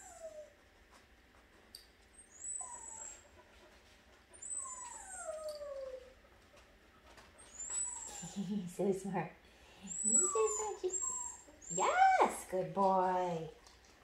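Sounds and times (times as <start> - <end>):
dog whining: 0.0 - 0.6, 2.2 - 3.4, 4.4 - 6.2, 7.4 - 8.4, 9.8 - 12.3.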